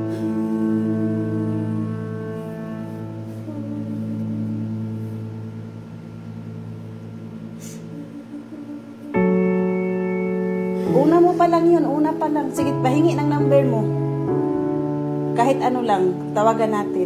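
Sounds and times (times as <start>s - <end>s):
long held music chords: 0.0s - 17.0s.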